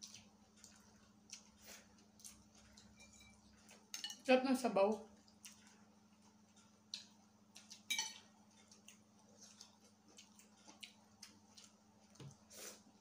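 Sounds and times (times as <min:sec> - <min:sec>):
food clicking and crackling: 0:00.0 - 0:12.5
spoon clinking on a dish: 0:03.0 - 0:04.3, 0:07.9 - 0:08.2.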